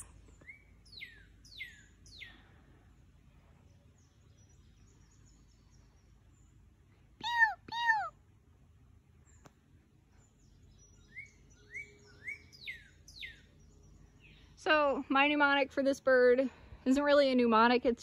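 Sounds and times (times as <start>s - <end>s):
bird singing whistled notes: 0.0s - 2.4s, 10.3s - 14.6s.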